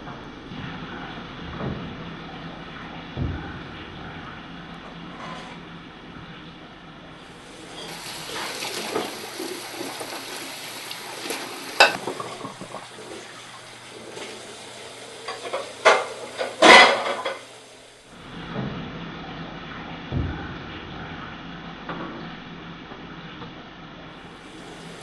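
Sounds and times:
dishes and cutlery clattering: 11.8 - 12.8, 15.2 - 17.5.

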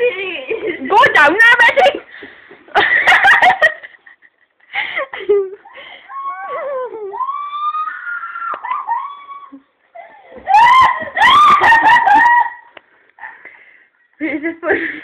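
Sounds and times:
laughter-like voice noise: 8.7 - 12.7.

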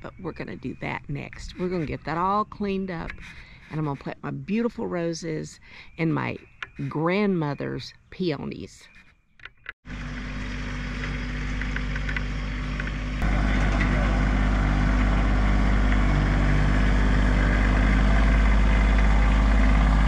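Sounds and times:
tractor diesel engine running: 9.8 - 20.0.

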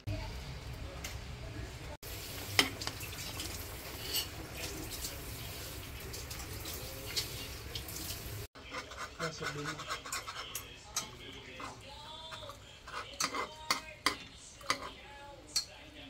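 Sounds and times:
sizzling in frying pan: 2.0 - 8.5
metal spoon stirring: 2.6 - 4.4, 8.6 - 16.0.

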